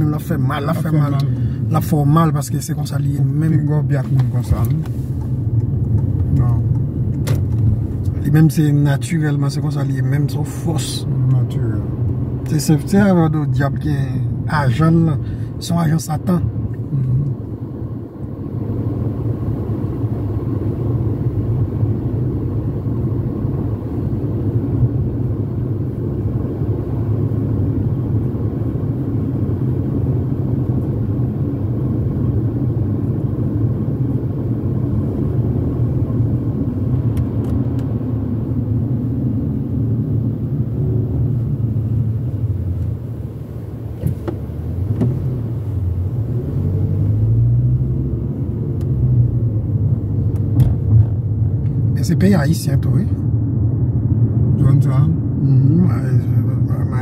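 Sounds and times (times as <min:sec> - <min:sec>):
car road rumble: 0:00.0 - 0:57.0.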